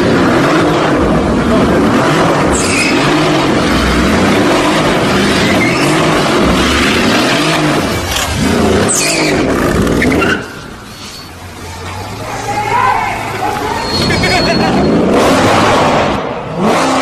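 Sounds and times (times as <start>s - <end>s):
car engine revving: 0.0s - 17.0s
tyres screeching: 2.0s - 15.4s.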